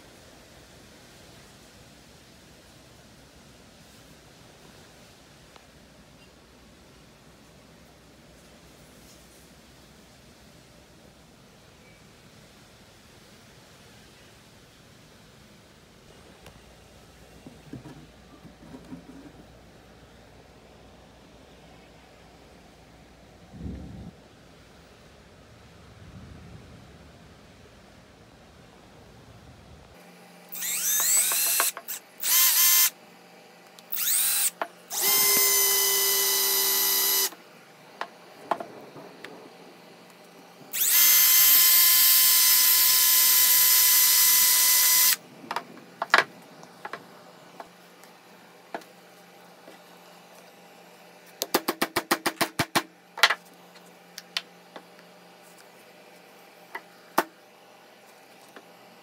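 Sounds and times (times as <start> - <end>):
cordless drill whine: 30.5 - 33.0, 33.9 - 37.4, 40.7 - 45.2.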